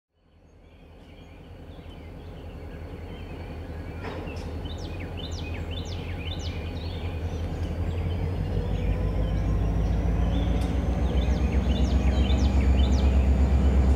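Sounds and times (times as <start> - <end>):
birds chirping: 0.2 - 13.9
low rumble: 0.7 - 13.9
sharp downward-sweeping bird calls: 2.3 - 13.9
click: 10.6 - 10.8.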